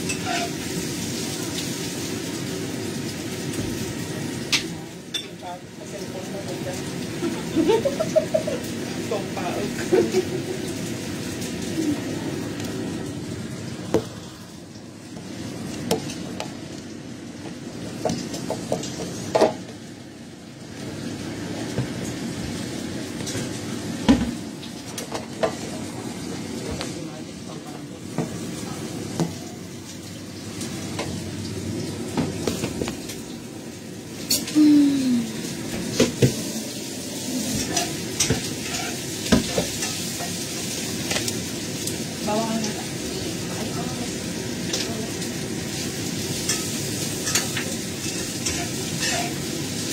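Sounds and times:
metal utensil clanking on pan: 0.0s - 0.6s, 37.6s - 40.3s, 46.4s - 49.4s
greens sizzling in a wok: 0.0s - 49.9s.

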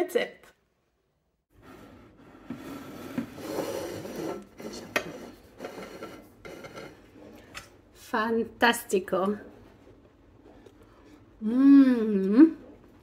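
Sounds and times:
plates scraping on wooden table: 1.6s - 7.6s.

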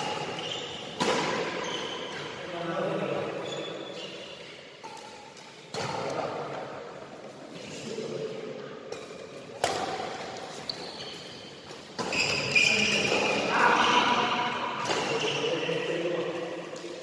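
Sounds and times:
rackets striking shuttlecock: 0.0s - 2.1s, 8.9s - 10.8s
shoes squeaking on court floor: 0.0s - 2.5s, 3.2s - 6.1s, 8.9s - 17.0s
players' voices: 12.4s - 17.0s.

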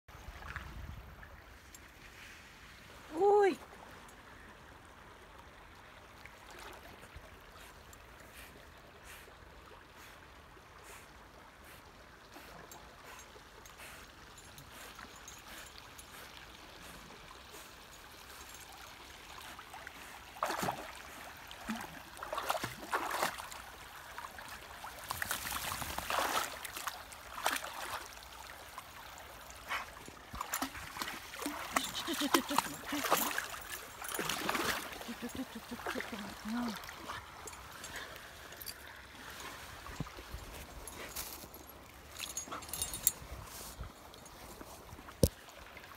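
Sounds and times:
river trickling: 0.1s - 45.9s
dog splashing in water: 20.4s - 20.9s, 21.6s - 23.6s, 24.9s - 28.1s, 29.8s - 37.4s.

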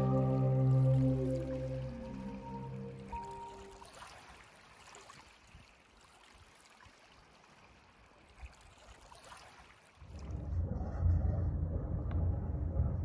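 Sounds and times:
low rumble: 10.1s - 13.0s.

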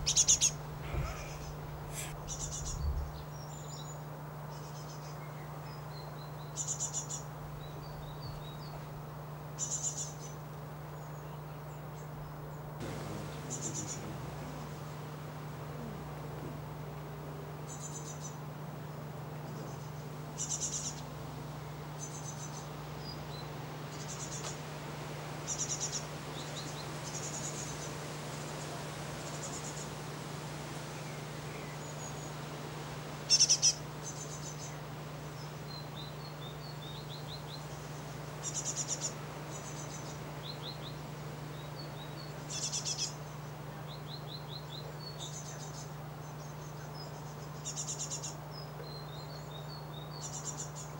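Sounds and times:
single bird chirps: 0.0s - 2.8s
bird twittering: 0.0s - 3.4s, 12.9s - 15.1s, 19.6s - 21.1s, 25.5s - 27.9s, 33.3s - 34.8s
steady low hum: 0.0s - 50.9s.

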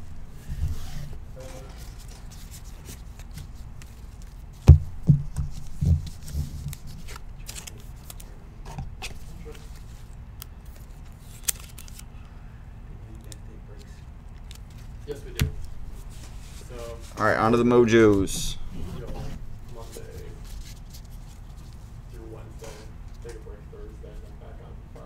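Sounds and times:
cards rustling and scraping: 0.4s - 4.6s, 5.5s - 12.1s, 13.8s - 22.0s
thumps on tabletop: 4.7s - 6.1s.

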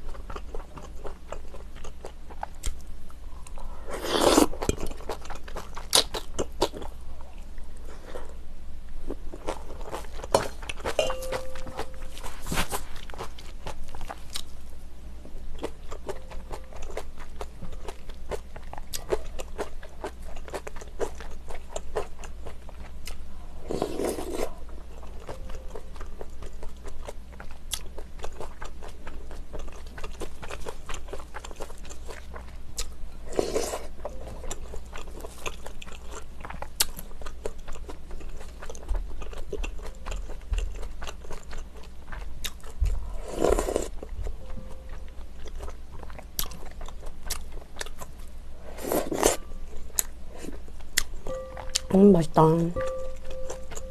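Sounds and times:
chewing: 15.6s - 51.9s, 52.8s - 53.9s.

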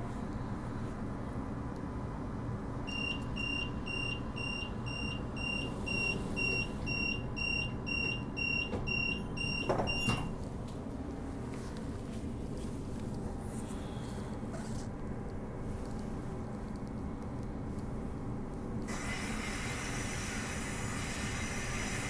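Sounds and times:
door-closing warning beeps: 2.9s - 10.4s.

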